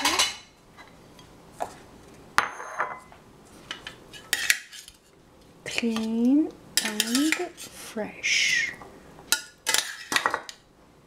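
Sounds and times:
metal spoons clinking on steel bowl: 0:06.8 - 0:07.6.

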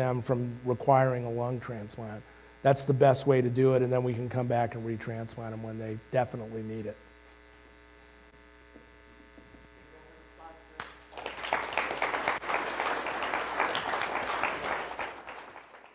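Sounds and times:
faint electrical mains hum: 0:00.0 - 0:15.9
audience applause: 0:10.8 - 0:15.9.

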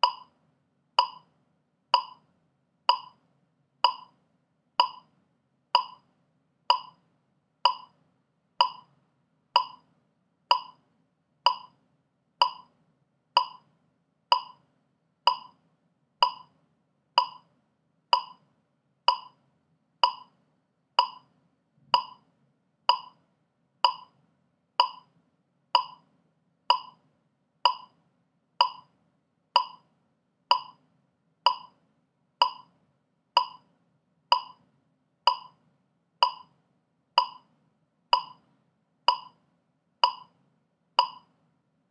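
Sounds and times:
metronome clicking: 0:00.0 - 0:00.3, 0:01.0 - 0:01.3, 0:02.0 - 0:02.2, 0:02.9 - 0:03.2, 0:03.8 - 0:04.2, 0:04.8 - 0:05.1, 0:05.8 - 0:06.0, 0:06.7 - 0:07.0, 0:07.7 - 0:07.9, 0:08.6 - 0:08.9, 0:09.6 - 0:09.8, 0:10.5 - 0:10.8, 0:11.5 - 0:11.7, 0:12.4 - 0:12.7, 0:13.4 - 0:13.7, 0:14.3 - 0:14.6, 0:15.3 - 0:15.6, 0:16.2 - 0:16.5, 0:17.2 - 0:17.5, 0:18.1 - 0:18.4, 0:19.1 - 0:19.4, 0:20.0 - 0:20.3, 0:21.0 - 0:21.3, 0:22.0 - 0:22.2, 0:22.9 - 0:23.2, 0:23.8 - 0:24.2, 0:24.8 - 0:25.1, 0:25.8 - 0:26.0, 0:26.7 - 0:27.0, 0:27.6 - 0:27.9, 0:28.6 - 0:28.9, 0:29.6 - 0:29.8, 0:30.5 - 0:30.8, 0:31.5 - 0:31.8, 0:32.4 - 0:32.7, 0:33.4 - 0:33.7, 0:34.3 - 0:34.6, 0:35.3 - 0:35.6, 0:36.2 - 0:36.6, 0:37.2 - 0:37.5, 0:38.1 - 0:38.4, 0:39.1 - 0:39.4, 0:40.0 - 0:40.3, 0:41.0 - 0:41.3.

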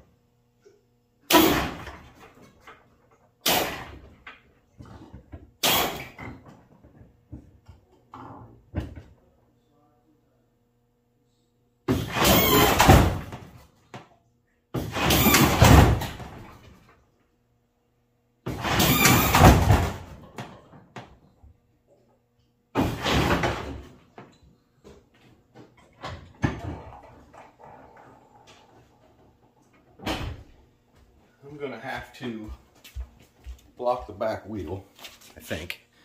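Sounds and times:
hydraulic suspension bursts: 0:05.6 - 0:06.2, 0:11.9 - 0:13.4, 0:14.8 - 0:16.3, 0:18.5 - 0:20.0
clunks and knocks: 0:22.8 - 0:30.6.

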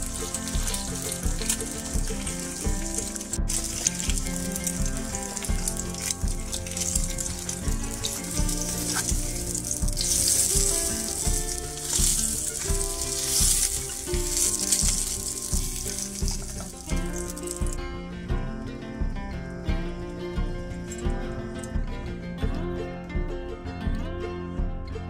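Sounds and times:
egg frying in hot oil: 0:00.0 - 0:17.8.

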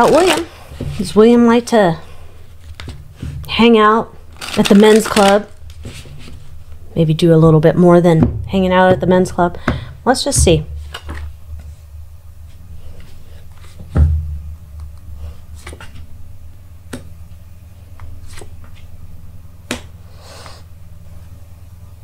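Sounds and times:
low steady hum: 0:00.0 - 0:22.0
cards snapping and tapping: 0:19.7 - 0:19.9.

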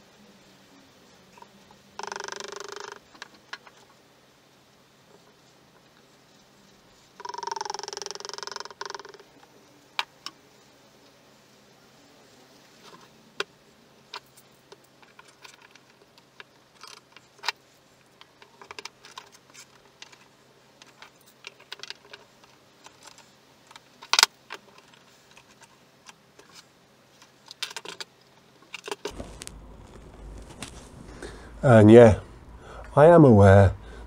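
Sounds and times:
low hum: 0:29.1 - 0:34.0.

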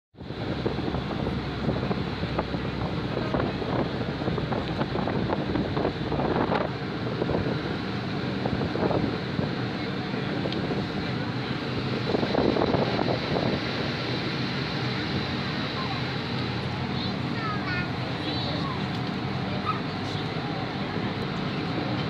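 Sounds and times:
ferry engine drone: 0:00.2 - 0:22.0
water rushing past hull: 0:00.2 - 0:22.0
wind buffeting microphone: 0:00.2 - 0:22.0.

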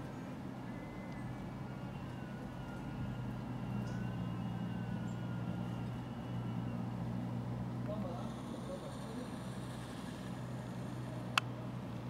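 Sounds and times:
steady low hum: 0:00.0 - 0:12.0
faint wavering wail: 0:00.7 - 0:07.3.

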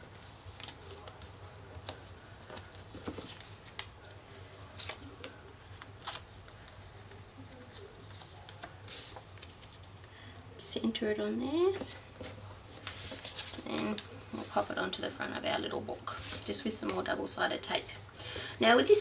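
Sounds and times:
paper crinkling: 0:00.0 - 0:10.0, 0:11.8 - 0:14.8.

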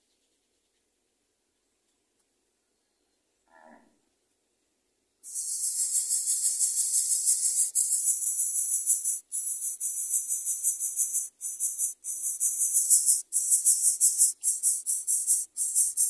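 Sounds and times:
bird chick hissing rattle: 0:05.3 - 0:16.0.

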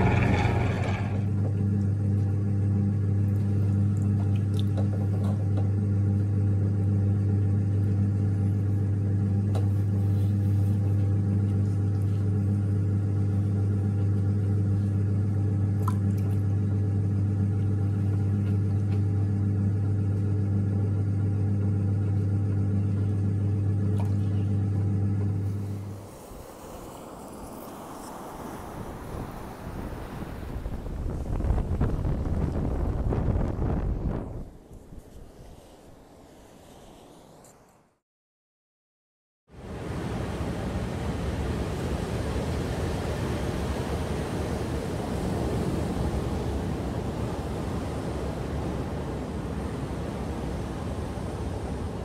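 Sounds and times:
pottery wheel motor humming: 0:00.0 - 0:29.8, 0:39.6 - 0:52.0.

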